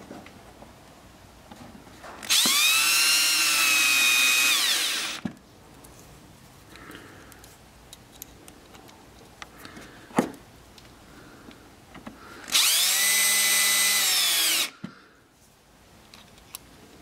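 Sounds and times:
cordless drill motor: 0:02.2 - 0:05.2, 0:12.4 - 0:14.8.

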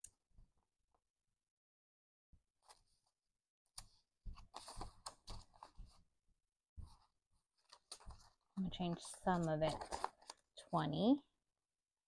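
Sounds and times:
banknotes rustling: 0:03.9 - 0:06.0, 0:06.8 - 0:10.5.

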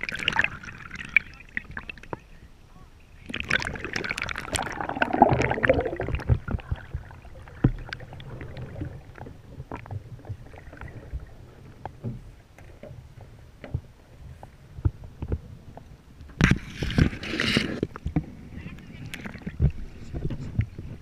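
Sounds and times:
water rushing and splashing: 0:00.0 - 0:02.4, 0:03.2 - 0:11.7
muffled underwater sound: 0:00.0 - 0:15.8, 0:16.5 - 0:21.0
knocks and clicks underwater: 0:03.3 - 0:21.0.

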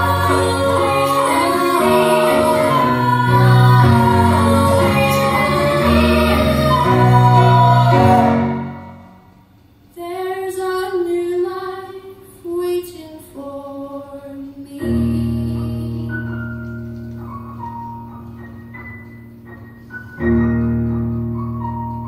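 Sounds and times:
vocal ensemble singing in harmony: 0:00.0 - 0:09.3
keyboard accompaniment: 0:00.0 - 0:09.6, 0:14.9 - 0:22.0.

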